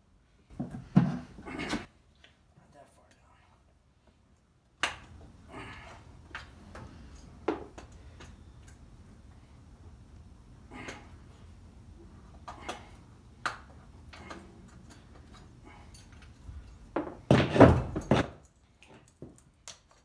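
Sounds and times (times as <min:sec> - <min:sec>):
heavy knocks and thuds: 0:17.0 - 0:18.4.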